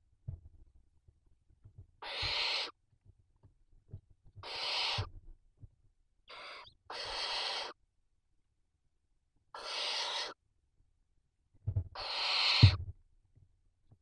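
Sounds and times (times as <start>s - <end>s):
owlets hissing calls: 2.0s - 2.7s, 4.4s - 5.1s, 6.3s - 7.8s, 9.6s - 10.4s, 12.0s - 12.8s.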